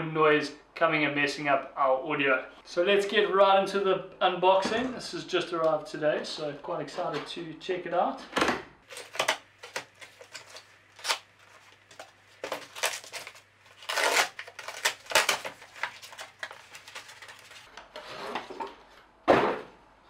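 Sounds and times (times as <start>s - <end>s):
packing tape tearing: 8.9s - 17.7s
cardboard rustling and scraping: 8.9s - 19.6s.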